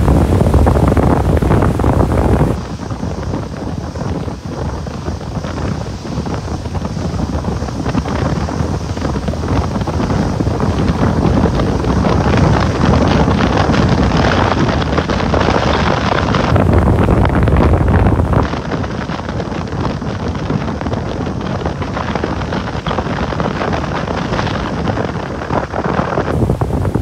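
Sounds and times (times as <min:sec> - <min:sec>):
boat motor running: 0:00.0 - 0:02.6
water along hull: 0:00.0 - 0:27.0
wind buffeting microphone: 0:00.0 - 0:27.0.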